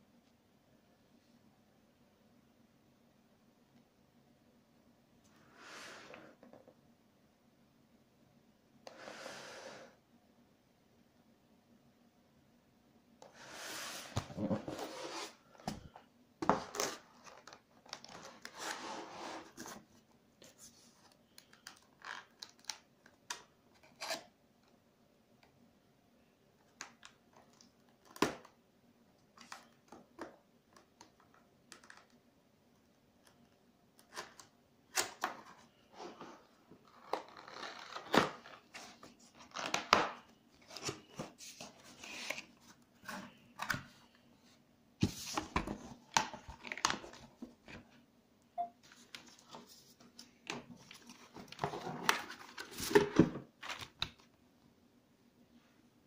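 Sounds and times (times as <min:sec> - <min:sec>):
cardboard box scraping and rustling: 0:13.4 - 0:15.5, 0:18.5 - 0:19.7.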